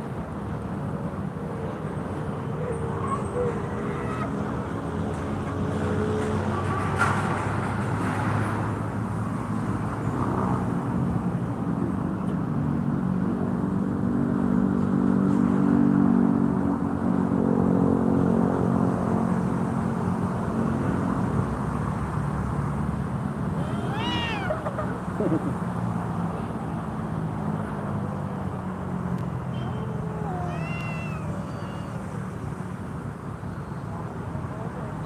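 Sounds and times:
cat yowling: 0:03.0 - 0:04.3, 0:23.6 - 0:25.0, 0:29.6 - 0:32.2.

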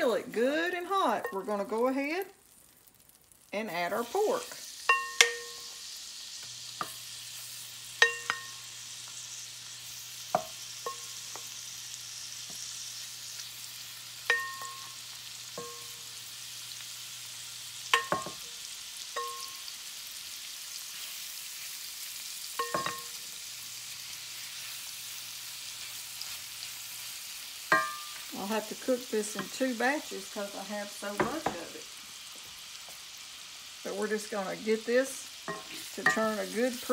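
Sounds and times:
meat sizzling in hot oil: 0:00.0 - 0:36.9
utensils clinking against pan: 0:04.9 - 0:05.8, 0:08.0 - 0:08.7, 0:14.2 - 0:15.0, 0:15.6 - 0:16.0, 0:17.9 - 0:18.4, 0:19.2 - 0:19.6, 0:22.6 - 0:23.2, 0:27.7 - 0:28.5, 0:35.5 - 0:36.9.

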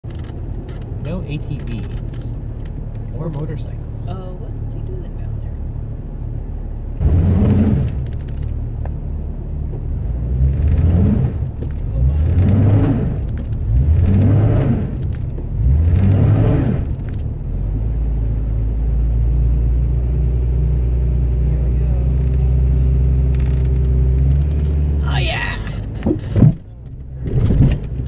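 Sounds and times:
low engine drone: 0:00.1 - 0:28.0
engine revving: 0:07.0 - 0:08.9, 0:09.9 - 0:17.8.

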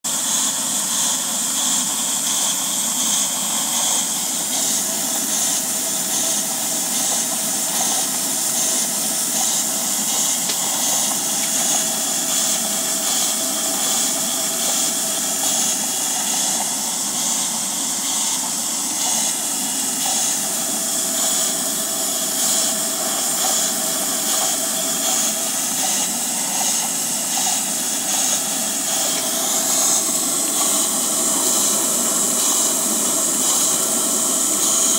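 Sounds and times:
steam engine running: 0:00.0 - 0:34.9
steam hissing: 0:00.1 - 0:34.9.

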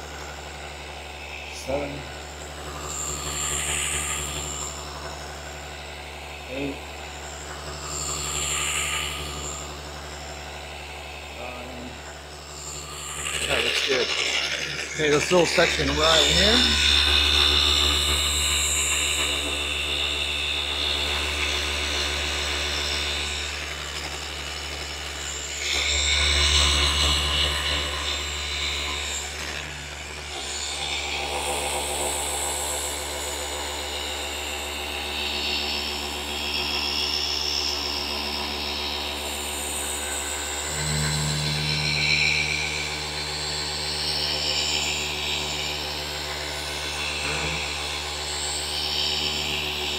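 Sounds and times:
orbital polisher motor whine: 0:00.0 - 0:49.9.

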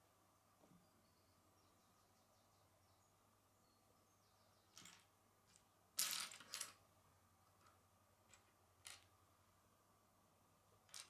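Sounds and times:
plastic bricks clicking together: 0:07.6 - 0:09.1.

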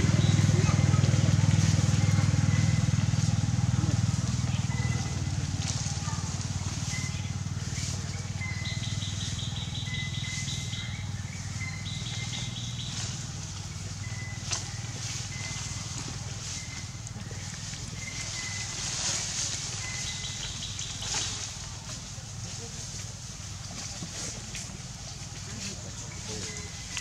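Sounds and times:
high-pitched chirping trills: 0:04.6 - 0:21.3.

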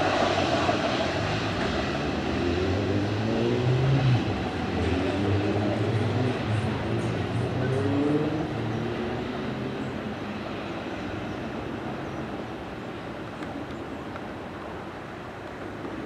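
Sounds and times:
diesel locomotive engine drone: 0:00.0 - 0:16.0
wheels on rail: 0:09.7 - 0:16.0.

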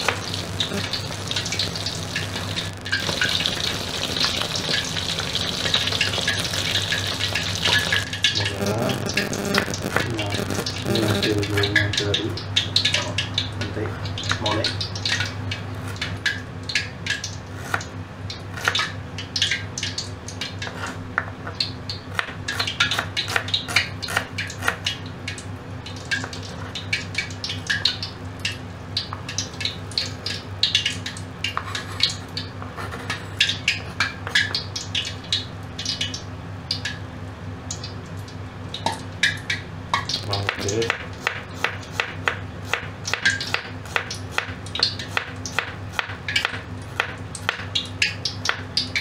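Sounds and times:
steady low hum: 0:00.0 - 0:18.3.

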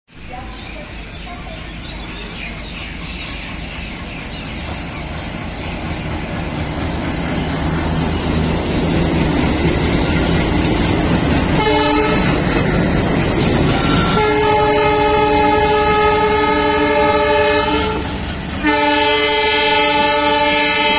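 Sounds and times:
diesel locomotive engine drone: 0:00.1 - 0:20.9
locomotive horn blast: 0:11.5 - 0:12.5, 0:13.5 - 0:20.9.

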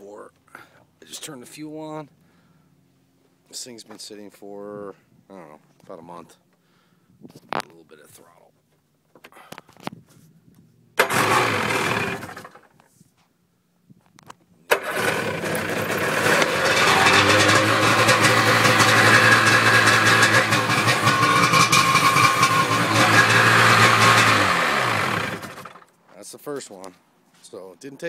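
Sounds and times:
jet ski engine starting: 0:11.0 - 0:12.7, 0:14.7 - 0:25.9.

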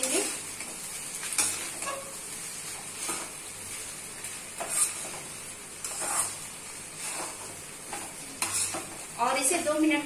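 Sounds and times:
faint sizzle: 0:00.0 - 0:10.0
metal spatula scraping a pan: 0:01.3 - 0:02.3, 0:04.2 - 0:09.1.

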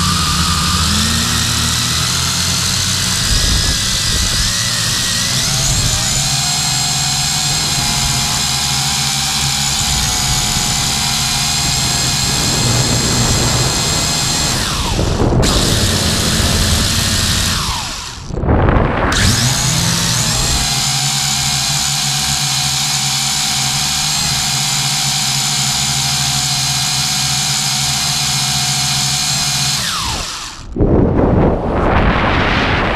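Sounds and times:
drone propellers whining: 0:00.0 - 0:24.8, 0:28.9 - 0:32.9
rush of wind noise: 0:02.8 - 0:20.8, 0:29.8 - 0:32.9.

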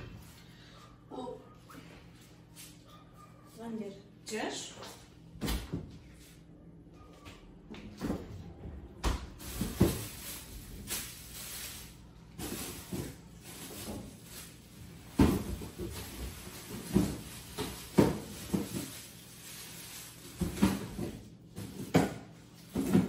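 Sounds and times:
kitchen knocks and clunks: 0:15.1 - 0:19.0, 0:20.4 - 0:23.0.

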